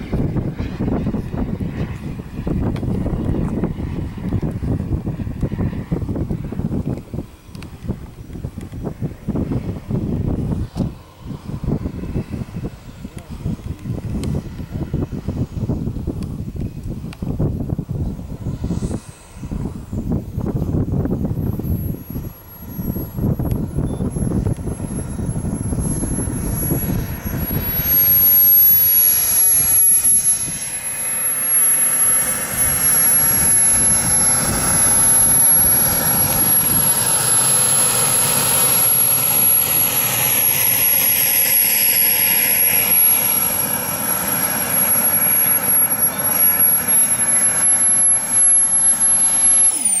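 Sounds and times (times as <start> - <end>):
jet turbine whine: 0.0 - 50.0
rushing jet blast: 17.8 - 50.0.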